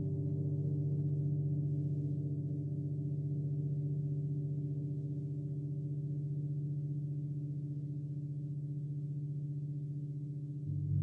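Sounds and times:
gong ringing with pulsing hum: 0:10.6 - 0:11.0.

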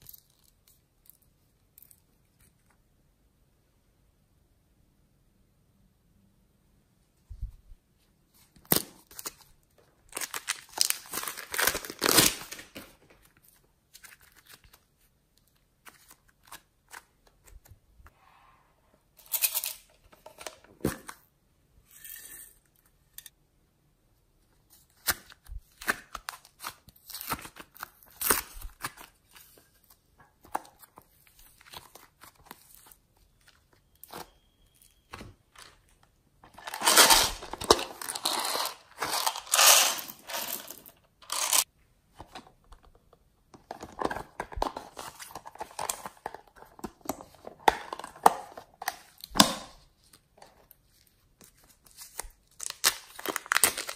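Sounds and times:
plastic film crinkling and tearing: 0:10.1 - 0:12.8, 0:36.5 - 0:41.7, 0:51.4 - 0:53.9.

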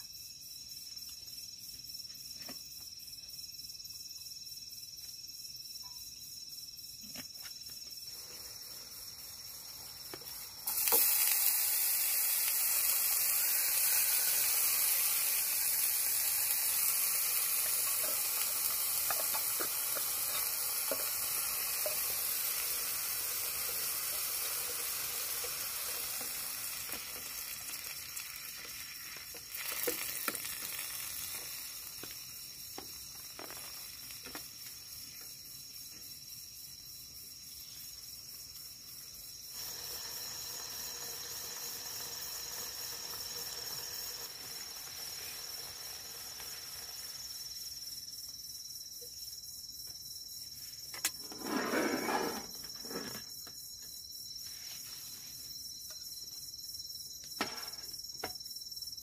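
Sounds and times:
high insect drone: 0:00.0 - 0:59.0
food sizzling in hot oil: 0:08.2 - 0:35.0, 0:39.4 - 0:48.1.

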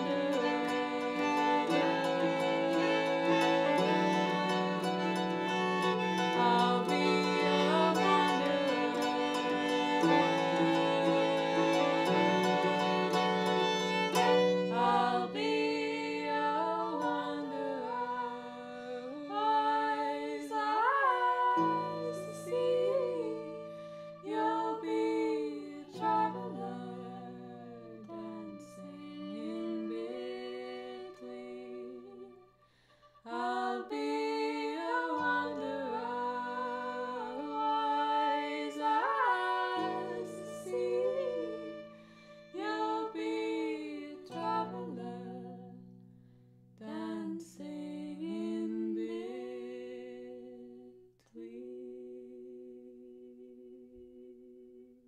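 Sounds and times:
harp chords: 0:00.0 - 0:18.4
fiddle: 0:00.0 - 0:45.9
woman singing: 0:00.0 - 0:45.9, 0:46.8 - 0:54.8.

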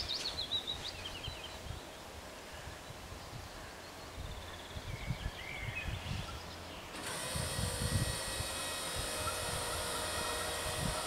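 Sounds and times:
bird chirps: 0:00.0 - 0:02.0
wind buffeting: 0:02.7 - 0:11.0.

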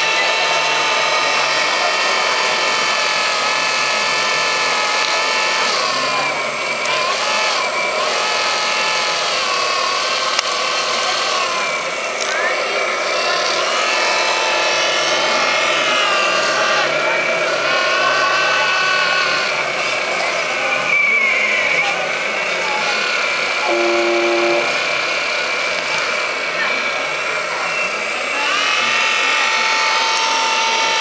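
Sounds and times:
hydraulic pump whine: 0:00.0 - 0:31.0.

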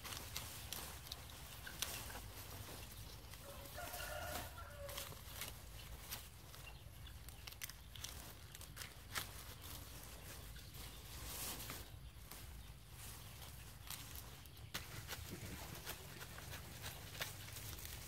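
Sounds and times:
hands rustling through grass stalks: 0:00.0 - 0:18.0
rooster crowing: 0:03.4 - 0:05.2.

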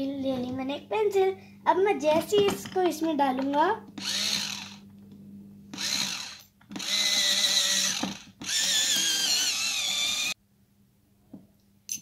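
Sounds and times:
electric pencil sharpener whirring: 0:04.0 - 0:05.0, 0:05.7 - 0:10.4.

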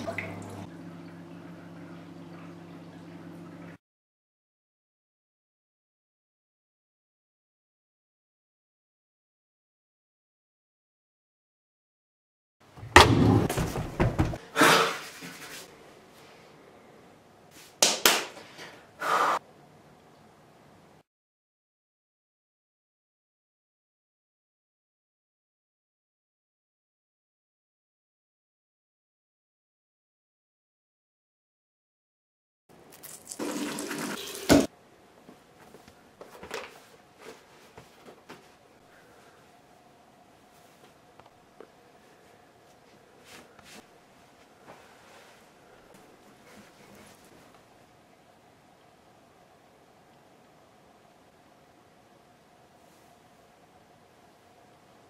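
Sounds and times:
knocks and thuds: 0:12.8 - 0:14.4
tap running into sink: 0:33.4 - 0:34.7.

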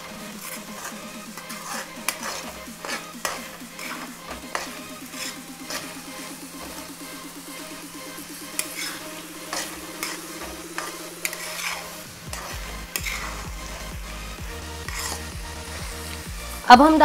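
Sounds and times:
food sizzling: 0:00.0 - 0:17.0
spoon scraping against a pan: 0:00.3 - 0:06.0, 0:08.4 - 0:13.9, 0:14.8 - 0:16.3.

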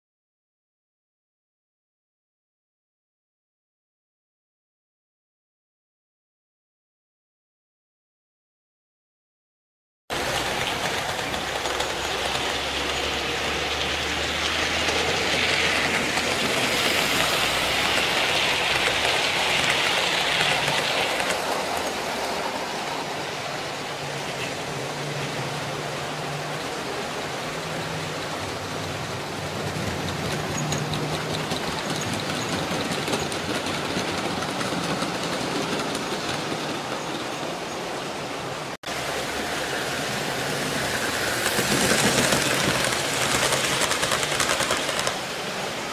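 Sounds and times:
model trains running on track: 0:10.1 - 0:45.9.

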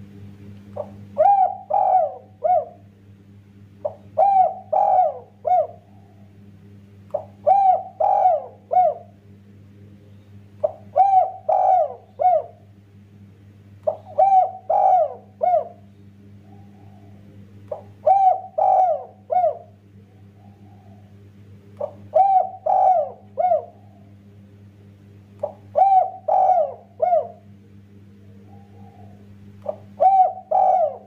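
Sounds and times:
steady low hum: 0:00.0 - 0:31.0
dove cooing: 0:00.7 - 0:02.9, 0:03.8 - 0:06.5, 0:07.1 - 0:09.2, 0:10.6 - 0:12.8, 0:13.8 - 0:24.3, 0:25.4 - 0:27.6, 0:28.2 - 0:31.0.

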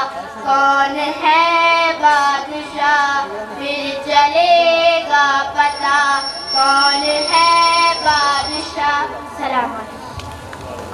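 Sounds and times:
girl singing unaccompanied: 0:00.4 - 0:09.7.

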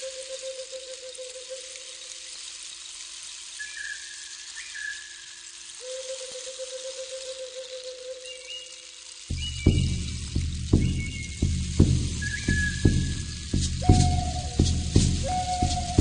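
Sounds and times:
steady hiss: 0:00.0 - 0:16.0
high sliding whistle-like notes: 0:09.3 - 0:16.0
long held notes: 0:09.3 - 0:16.0
low drone: 0:09.3 - 0:16.0.

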